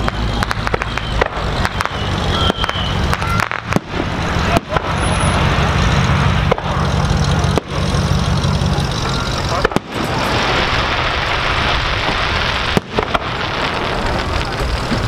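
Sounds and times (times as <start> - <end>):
faint firework pops: 0.0 - 5.0, 12.0 - 15.0
vehicle engine idling: 0.0 - 15.0.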